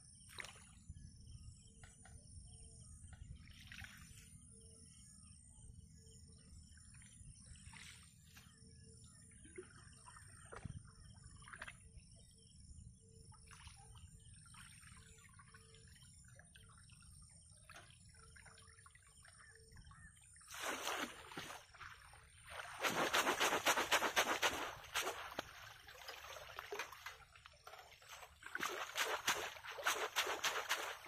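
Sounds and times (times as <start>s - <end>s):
water trickling and lapping: 0.2s - 5.2s, 6.6s - 31.0s
water splashing and sloshing: 3.4s - 4.5s, 13.4s - 31.0s.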